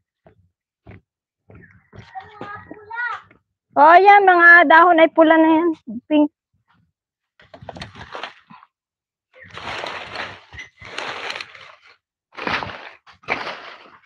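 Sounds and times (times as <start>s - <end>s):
leafy plants rustling and snapping: 7.5s - 8.5s, 9.4s - 14.0s.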